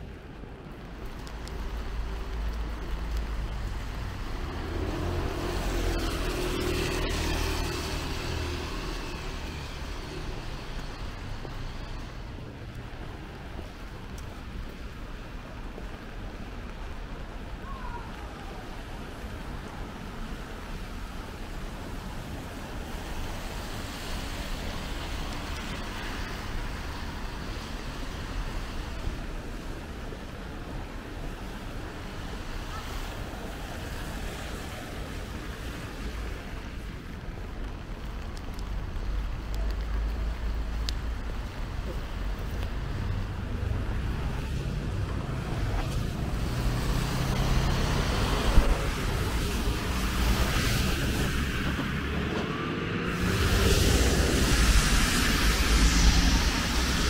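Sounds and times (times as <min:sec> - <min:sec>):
low traffic rumble: 0:00.0 - 0:57.0
tyres hissing on wet road: 0:00.0 - 0:57.0.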